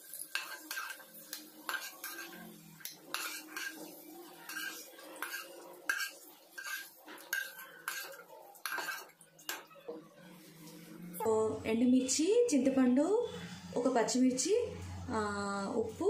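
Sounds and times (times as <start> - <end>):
spatula scraping a metal pan: 0.1 - 9.7.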